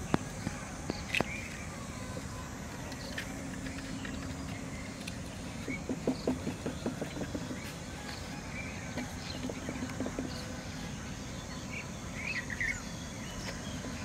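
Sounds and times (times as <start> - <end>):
hands tapping plastic pipe: 5.7 - 7.7.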